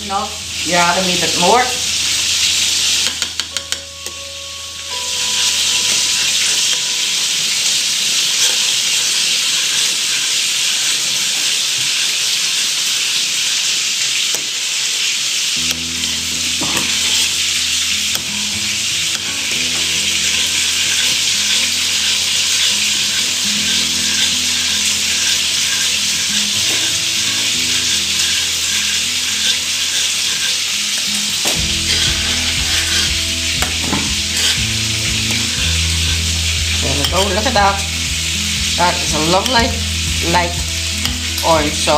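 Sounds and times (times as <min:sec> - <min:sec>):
food sizzling in pans: 0:00.0 - 0:41.9
metal spoon stirring in saucepan: 0:08.2 - 0:12.9, 0:16.6 - 0:18.4, 0:19.0 - 0:37.9.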